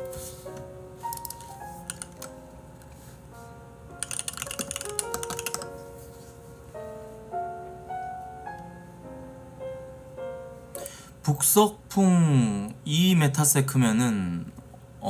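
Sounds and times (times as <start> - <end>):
background music of held notes: 0.0 - 11.0
computer keyboard typing: 1.0 - 2.4, 4.0 - 5.8.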